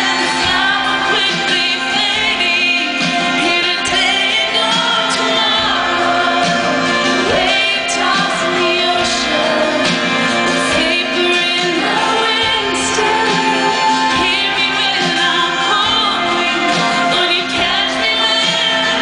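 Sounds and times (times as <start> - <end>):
live band playing: 0.0 - 19.0
woman singing: 0.0 - 19.0.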